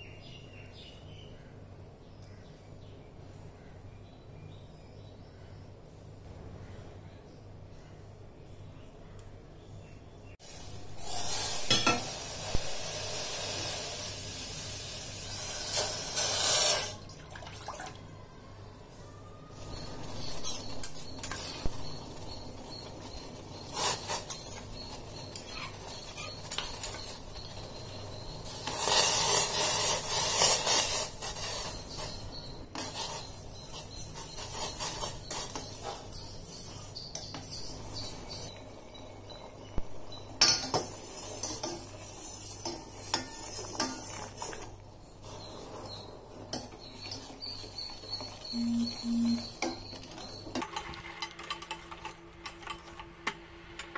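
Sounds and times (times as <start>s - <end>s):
spoon scraping saucepan: 10.9s - 13.8s, 19.6s - 39.4s, 40.2s - 53.0s.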